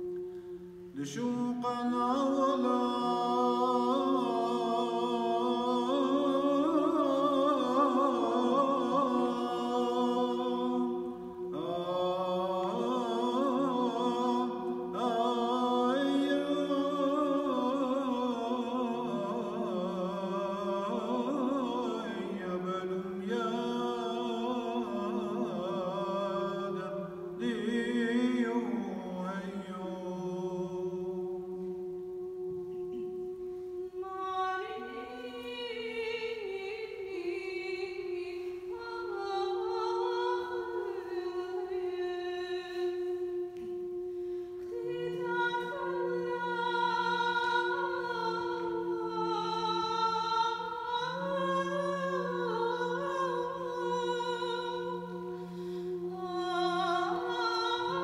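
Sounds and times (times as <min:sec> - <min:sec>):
held drone note: 0:42.6 - 0:58.0.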